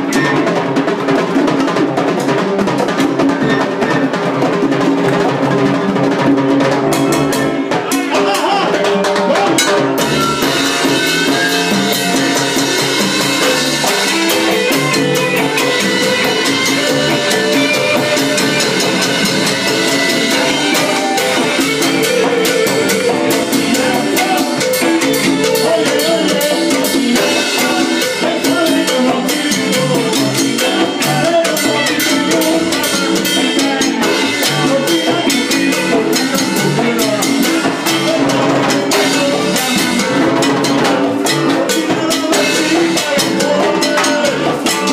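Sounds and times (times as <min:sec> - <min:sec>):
drum kit: 0:00.0 - 0:44.9
latin percussion strokes: 0:00.0 - 0:44.9
salsa band playing: 0:00.0 - 0:44.9.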